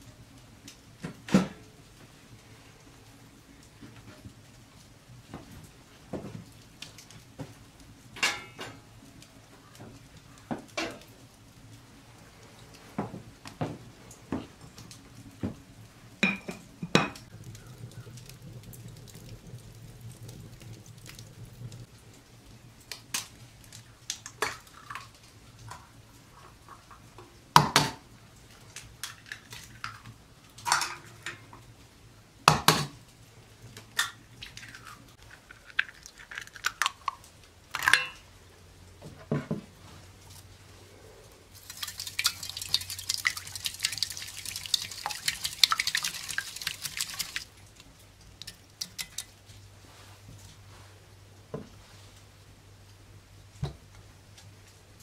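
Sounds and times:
eggs cracking into metal bowl: 24.1s - 25.2s, 33.9s - 38.2s, 41.6s - 47.5s, 48.3s - 49.4s
whisk swishing against bowl: 41.6s - 47.4s.

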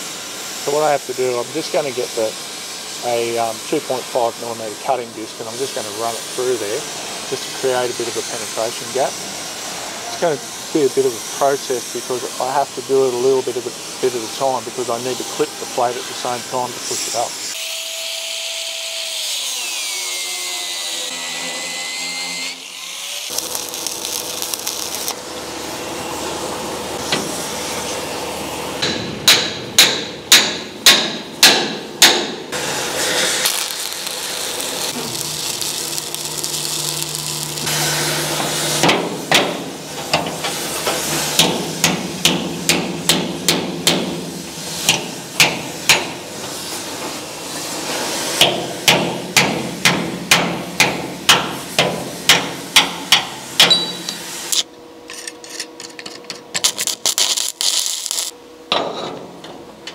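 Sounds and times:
welding arc crackle: 23.1s - 27.5s, 32.5s - 46.4s, 56.6s - 58.4s
hammer striking steel wedge: 28.8s - 32.6s, 38.4s - 40.6s, 41.4s - 46.2s, 48.4s - 54.2s.

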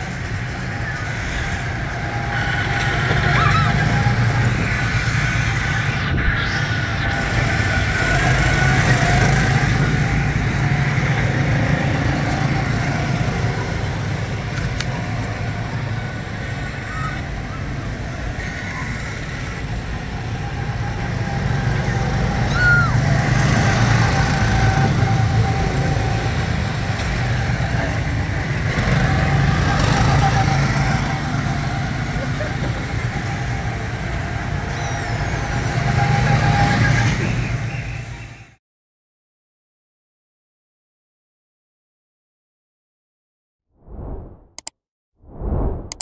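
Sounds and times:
go-kart engines running: 0.0s - 38.5s.

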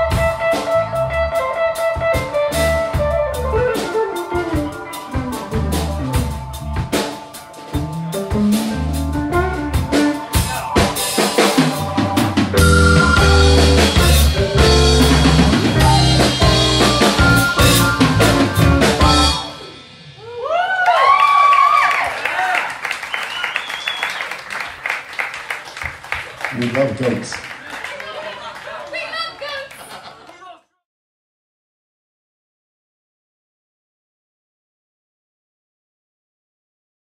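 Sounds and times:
busy drumming: 0.0s - 20.0s
live rock band playing: 0.0s - 20.3s.

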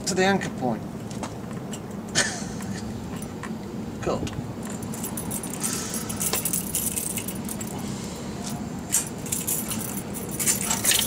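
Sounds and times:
steady low hum: 0.0s - 11.0s
steel chain jangling: 4.6s - 7.8s, 8.4s - 11.0s.

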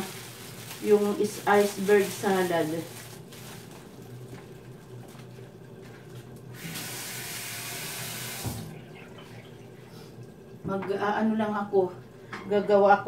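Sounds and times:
water running into a sink: 6.6s - 8.7s.

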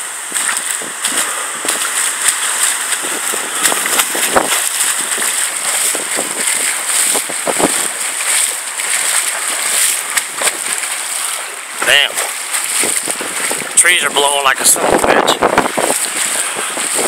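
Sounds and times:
rain: 0.0s - 13.8s
storm wind through trees: 12.7s - 17.0s.

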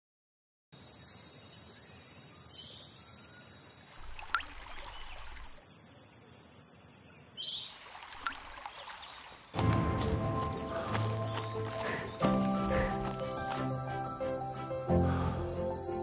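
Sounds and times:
crickets trilling: 0.8s - 16.0s
water drips: 3.9s - 5.6s, 7.7s - 14.4s.

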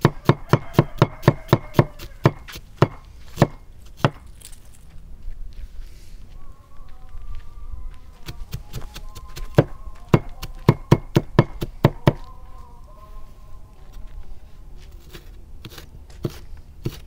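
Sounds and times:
knife chopping on cutting board: 0.0s - 4.2s.

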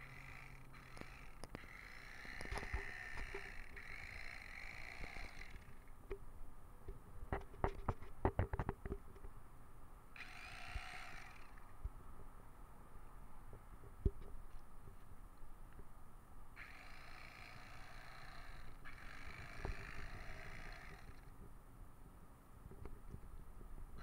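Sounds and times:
electric knife whirring: 0.0s - 5.9s, 10.2s - 11.7s, 16.6s - 21.3s
sharp clicks: 0.3s - 6.2s.

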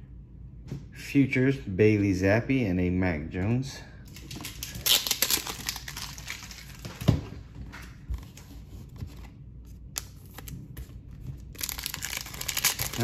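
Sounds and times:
cards and foil packs rustling: 4.1s - 13.0s.

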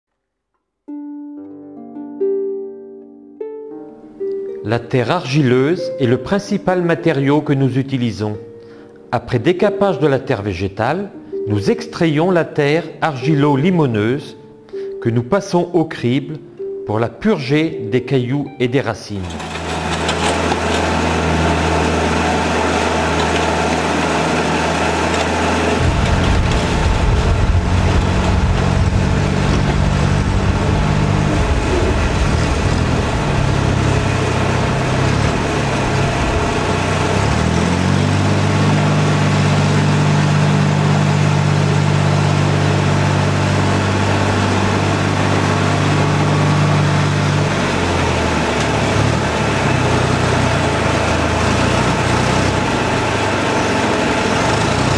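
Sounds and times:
loader engine revving: 19.2s - 54.9s.

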